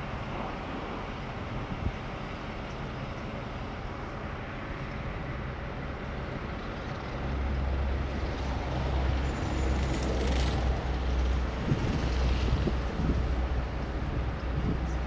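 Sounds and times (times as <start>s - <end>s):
wind buffeting microphone: 9.8s - 15.0s.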